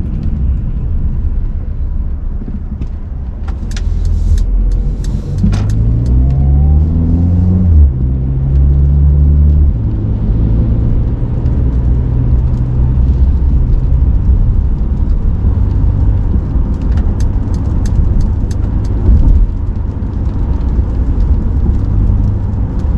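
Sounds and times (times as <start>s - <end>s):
tyre and road rumble: 0.0s - 22.9s
car engine accelerating: 3.5s - 22.9s.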